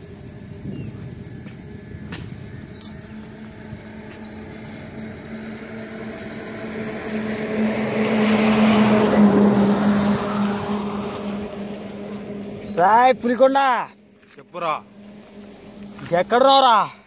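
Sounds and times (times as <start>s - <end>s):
road noise: 0.0s - 17.0s
vehicle engine approaching: 0.0s - 17.0s.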